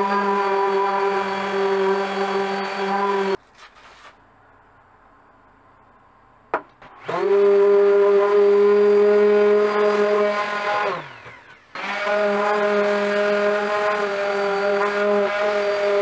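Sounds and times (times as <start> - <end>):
orbital sander running: 0.0 - 3.4, 7.0 - 16.0.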